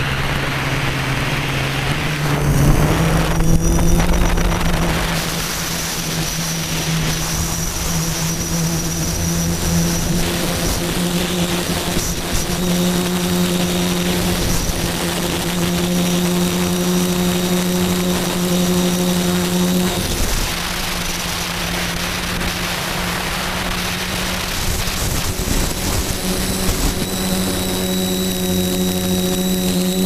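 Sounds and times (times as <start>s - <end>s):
wind rushing over airframe: 0.0s - 15.5s, 20.0s - 29.1s
electric motor and propeller hum: 0.0s - 30.0s.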